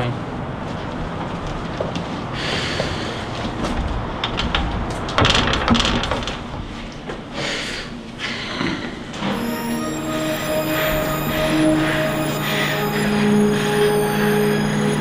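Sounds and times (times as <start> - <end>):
door knock and rattle: 4.3 - 6.6.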